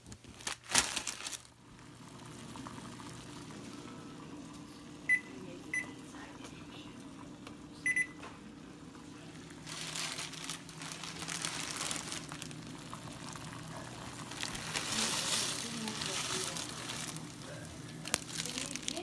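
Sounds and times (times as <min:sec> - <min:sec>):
plastic packet crinkling: 0:00.0 - 0:01.6, 0:09.5 - 0:19.0
low steady hum: 0:00.0 - 0:19.0
kitchen appliance beeps: 0:05.1 - 0:06.0, 0:07.8 - 0:08.3.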